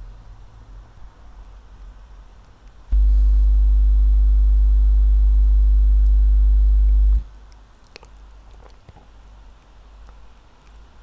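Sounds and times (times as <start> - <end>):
loud low-pitched hum: 2.9 - 7.2.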